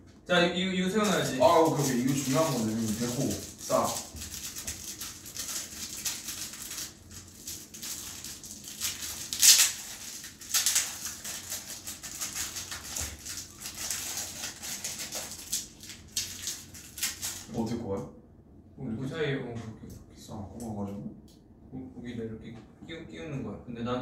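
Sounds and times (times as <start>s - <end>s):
plastic pieces rustling: 1.0s - 17.6s.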